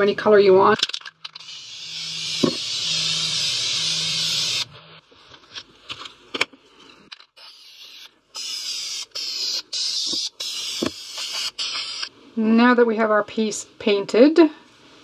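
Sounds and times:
spray paint can hissing: 0:01.4 - 0:04.7, 0:07.4 - 0:12.1.

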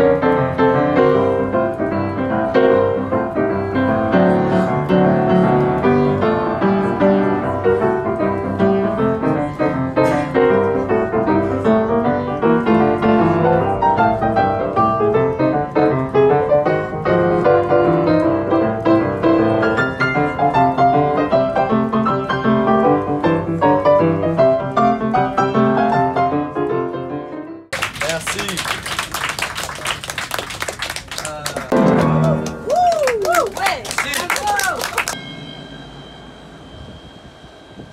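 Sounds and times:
boogie-woogie piano: 0:00.0 - 0:27.8, 0:31.7 - 0:33.6.

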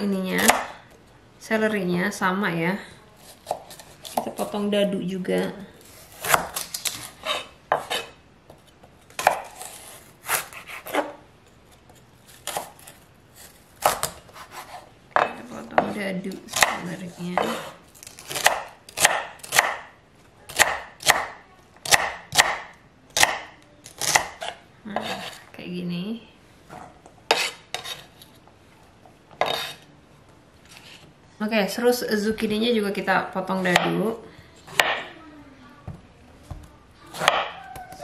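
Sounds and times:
knife cutting on wooden board: 0:06.0 - 0:08.2, 0:09.2 - 0:11.2, 0:12.4 - 0:14.9, 0:26.7 - 0:28.2, 0:29.4 - 0:29.8.

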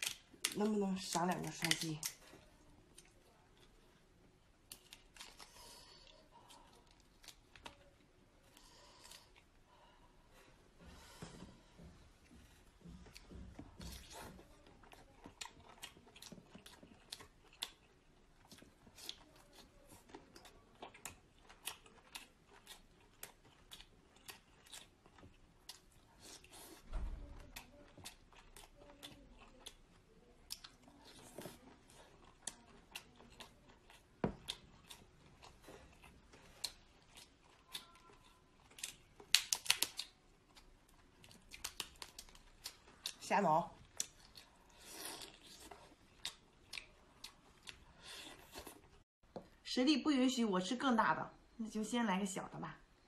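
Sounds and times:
shell crackling as it is peeled: 0:00.0 - 0:02.2, 0:38.7 - 0:40.2
soft chewing: 0:00.0 - 0:49.6.

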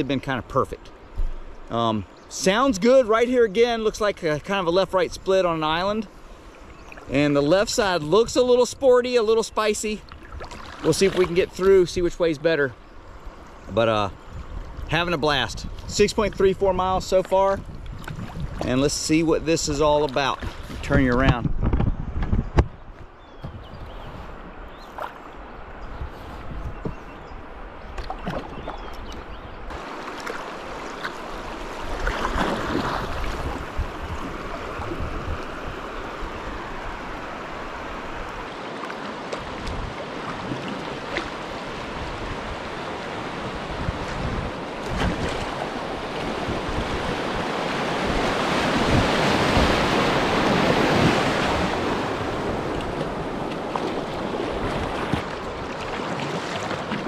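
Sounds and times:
rushing river water: 0:00.0 - 0:21.1, 0:24.2 - 0:57.0
paddle blades splashing: 0:02.3 - 0:13.7, 0:14.4 - 0:21.4, 0:23.8 - 0:57.0
wind buffeting microphone: 0:14.2 - 0:19.4, 0:20.2 - 0:29.7, 0:31.6 - 0:37.3, 0:39.4 - 0:56.0.

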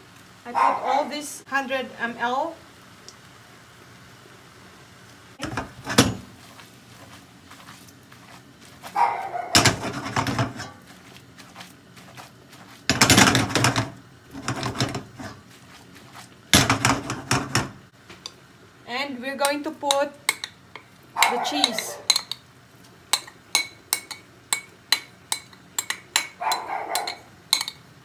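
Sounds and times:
pan shaking and scraping on grate: 0:05.4 - 0:17.8.

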